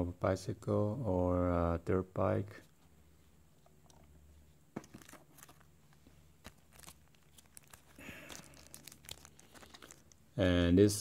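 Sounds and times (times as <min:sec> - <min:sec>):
paper cards clicking and rustling: 0:04.8 - 0:10.2
plastic sleeve crinkling: 0:04.8 - 0:10.4.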